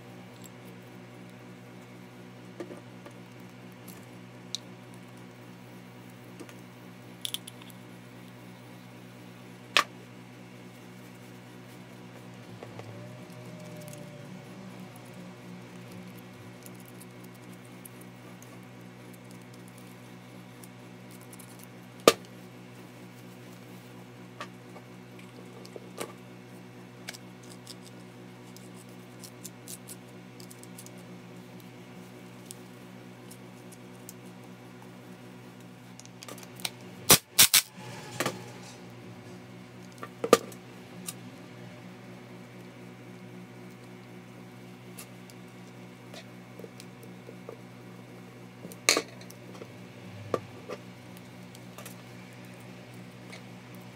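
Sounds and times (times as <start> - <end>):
low hum: 36.6 - 42.6.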